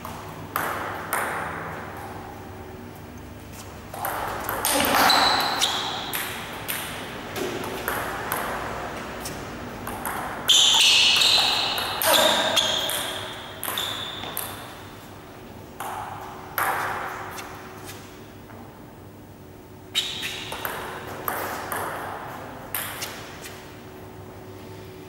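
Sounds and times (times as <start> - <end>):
table tennis ball clicking: 4.0 - 8.7, 9.8 - 14.7, 20.0 - 22.0.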